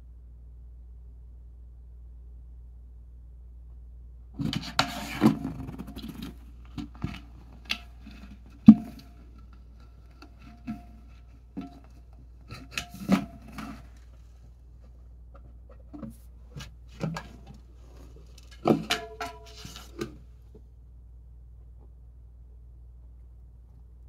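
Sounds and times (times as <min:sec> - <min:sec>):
can knocking and clanking on floor: 0:04.4 - 0:14.0, 0:15.9 - 0:20.2.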